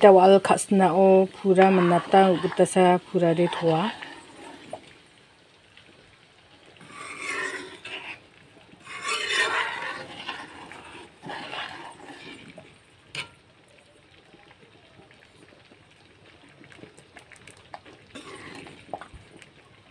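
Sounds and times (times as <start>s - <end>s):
metal ladle scraping a metal pan: 0.4s - 4.9s, 6.8s - 13.4s, 18.1s - 19.0s.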